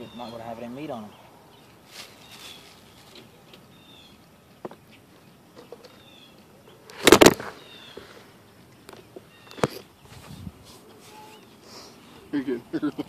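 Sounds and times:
small birds chirping: 0:00.0 - 0:13.0
handling rustle and bumps: 0:01.8 - 0:03.7, 0:06.9 - 0:08.2.

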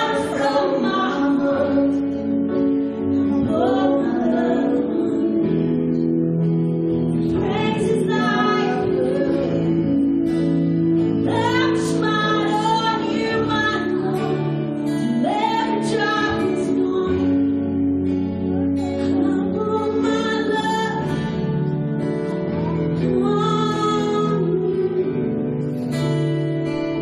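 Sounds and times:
person singing: 0:00.0 - 0:27.0
strummed guitars: 0:00.0 - 0:27.0
worship band playing: 0:00.0 - 0:27.0.

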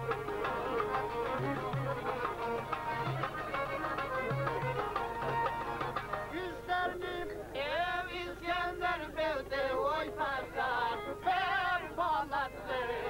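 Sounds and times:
string accompaniment: 0:00.0 - 0:07.4
person singing folk song with vibrato: 0:06.2 - 0:13.0.

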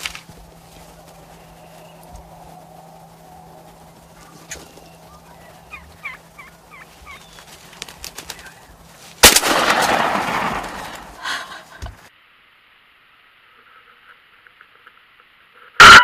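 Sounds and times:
turkey flapping on ground: 0:00.0 - 0:12.1
turkey yelps: 0:00.6 - 0:08.8, 0:15.8 - 0:16.0
shotgun shot: 0:09.2 - 0:11.2.

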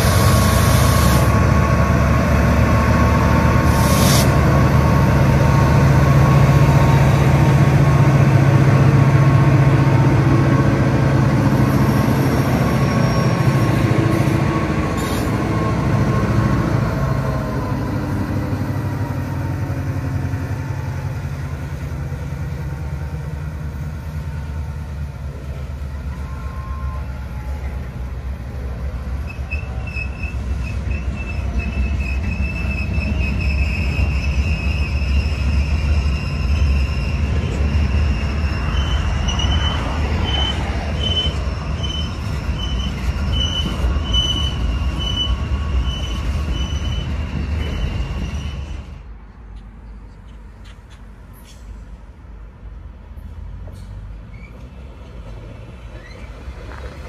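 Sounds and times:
train rumbling on rails: 0:00.0 - 0:57.0
high-pitched wheel squeal: 0:12.4 - 0:14.3, 0:29.2 - 0:49.0, 0:54.3 - 0:54.6, 0:55.9 - 0:56.4.

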